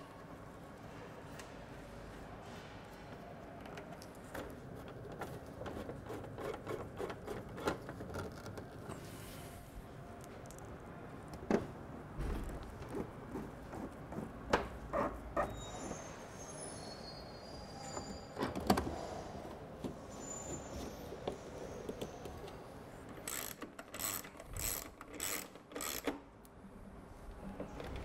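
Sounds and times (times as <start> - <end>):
screwdriver clicks and ticks: 23.2 - 26.2.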